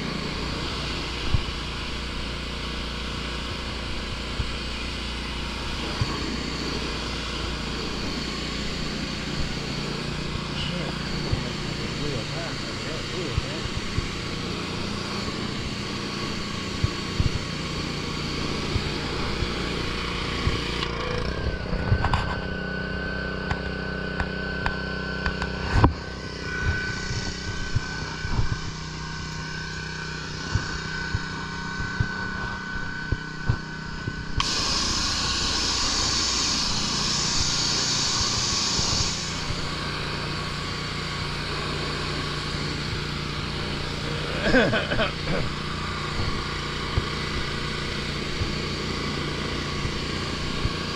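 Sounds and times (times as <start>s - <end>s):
small gasoline engine running: 0.0s - 50.9s
pressure washer spray hiss: 0.2s - 20.7s, 34.4s - 50.9s.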